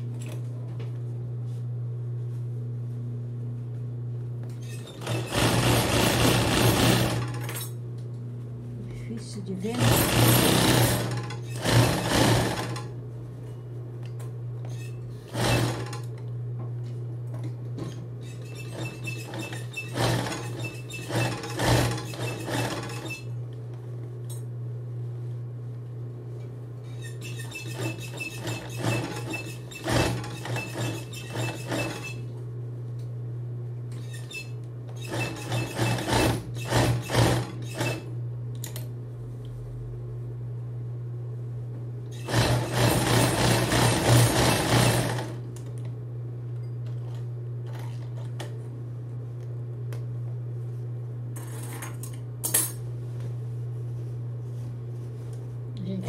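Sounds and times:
sewing machine stitching: 0:04.7 - 0:07.5, 0:09.7 - 0:12.9, 0:15.2 - 0:16.1, 0:18.3 - 0:23.3, 0:27.2 - 0:32.2, 0:35.0 - 0:38.1, 0:42.2 - 0:45.4
sewing machine motor humming: 0:04.8 - 0:07.5, 0:09.6 - 0:12.9, 0:15.2 - 0:16.2, 0:18.3 - 0:23.3, 0:27.4 - 0:32.3, 0:34.2 - 0:38.1, 0:42.1 - 0:45.5.

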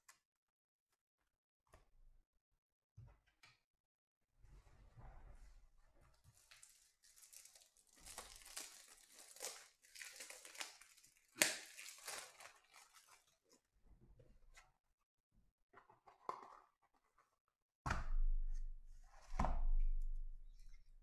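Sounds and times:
card pack wrapper crinkling: 0:06.4 - 0:13.4.

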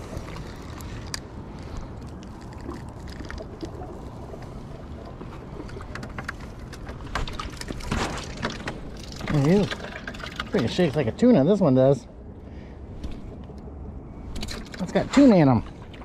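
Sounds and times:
water and wind rumble: 0:00.0 - 0:16.0.

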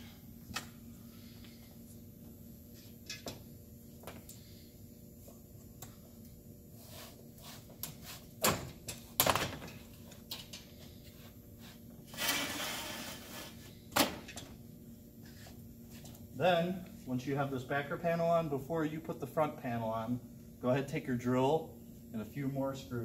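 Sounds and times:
board scraping into slot: 0:12.2 - 0:13.6.

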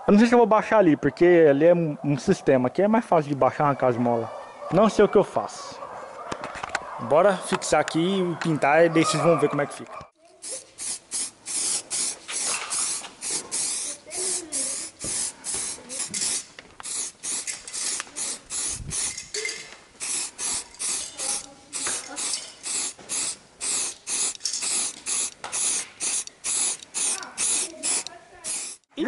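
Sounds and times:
spray-paint can hissing: 0:10.4 - 0:19.4, 0:20.0 - 0:28.9.

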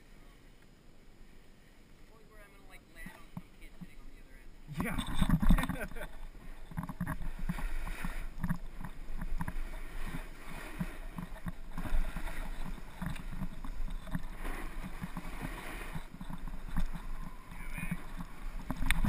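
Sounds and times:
snowboard scraping over snow: 0:04.7 - 0:19.0
wind on microphone: 0:04.7 - 0:19.0.

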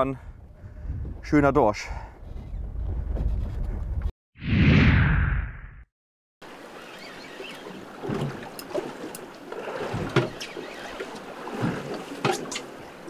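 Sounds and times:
wind and water noise: 0:00.0 - 0:04.1, 0:06.4 - 0:13.0
water knocking against hull: 0:08.0 - 0:12.7.

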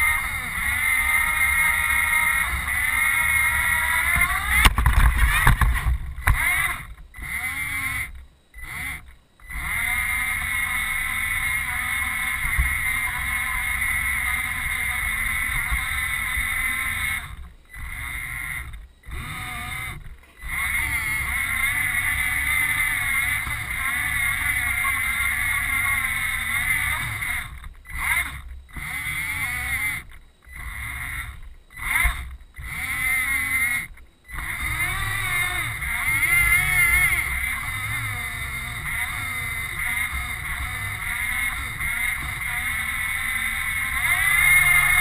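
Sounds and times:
wheels rumbling on track: 0:00.0 - 0:07.4
electric motors whining: 0:00.0 - 0:45.0.

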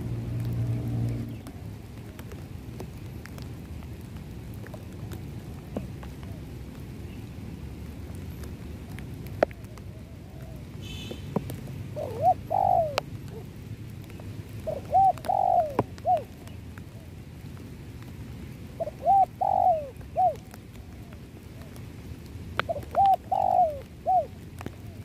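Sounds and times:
steady rain: 0:00.0 - 0:25.0
dove cooing: 0:08.9 - 0:13.6, 0:14.6 - 0:17.2, 0:18.7 - 0:21.8, 0:22.6 - 0:25.0.

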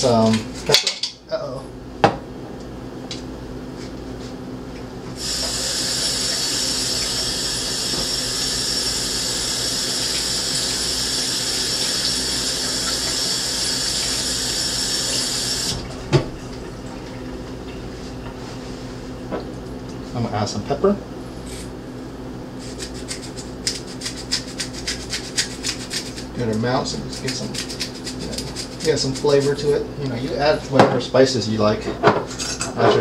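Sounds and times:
faucet running water into sink: 0:05.2 - 0:16.0.

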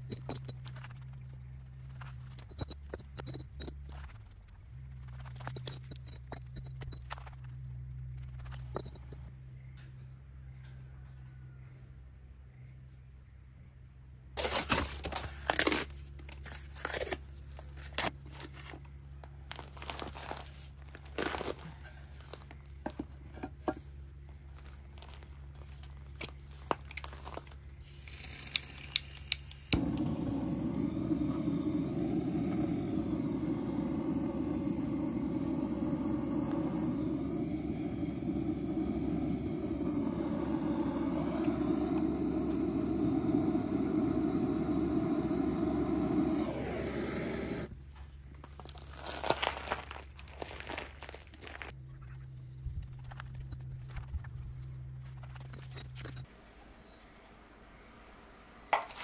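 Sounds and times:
paper and kindling crinkling: 0:14.4 - 0:22.8, 0:24.3 - 0:29.2, 0:48.0 - 0:51.7
butane torch roaring: 0:27.9 - 0:47.8
gas hissing: 0:27.9 - 0:47.8
igniter clicks: 0:28.4 - 0:46.7.

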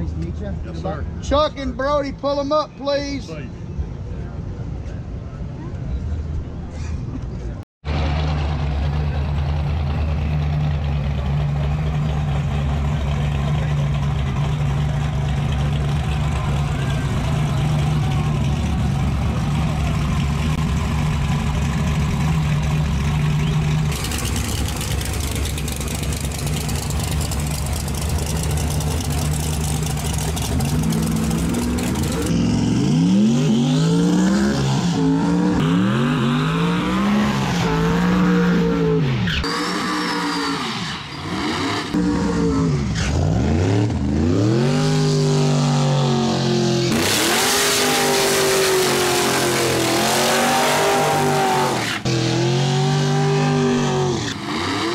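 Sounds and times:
race engine idling: 0:07.3 - 0:32.3
race engine running loud: 0:07.9 - 0:38.8
engines revving hard: 0:07.9 - 0:54.9.

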